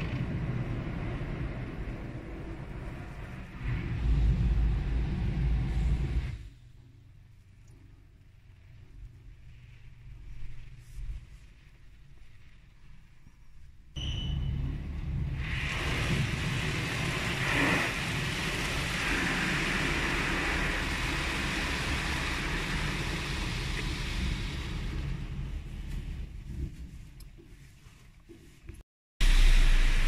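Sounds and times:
car wash machinery rumble: 0.0s - 12.6s, 14.0s - 28.6s
water spray hitting car: 15.1s - 25.7s.

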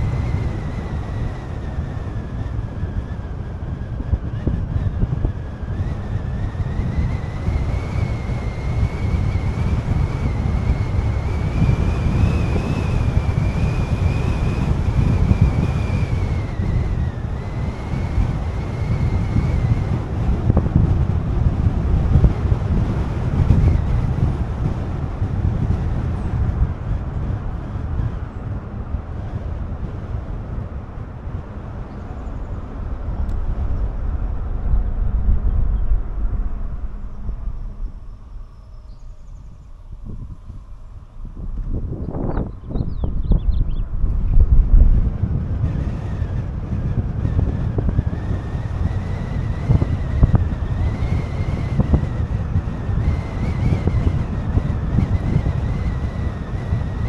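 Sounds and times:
wind buffeting microphone: 0.0s - 57.0s
car road rumble: 16.2s - 56.7s
thin high whine: 31.9s - 57.0s.

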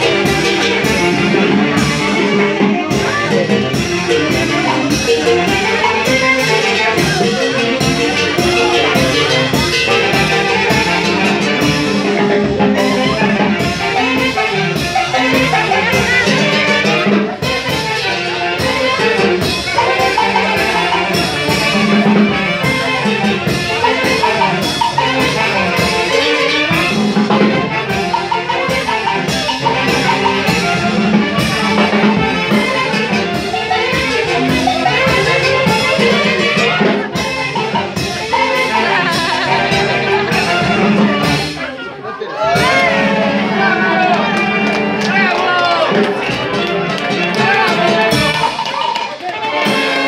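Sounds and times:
steady drum beat: 0.0s - 41.8s, 42.4s - 50.0s
brass band dance music: 0.0s - 50.0s.

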